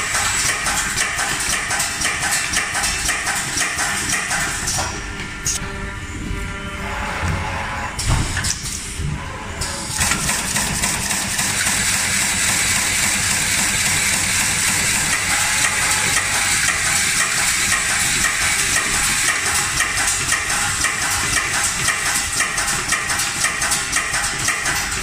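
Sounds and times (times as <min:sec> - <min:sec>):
steady dense machine noise: 0:00.0 - 0:25.0.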